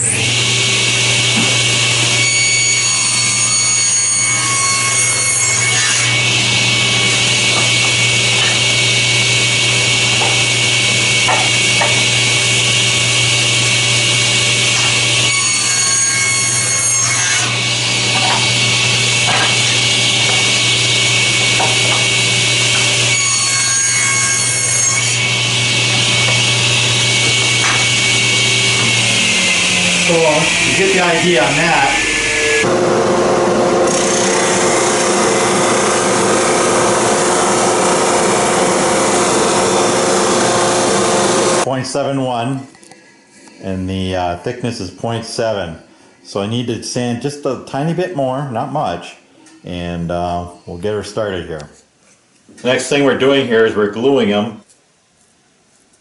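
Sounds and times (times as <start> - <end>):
table saw cutting plywood: 0.0 - 41.7.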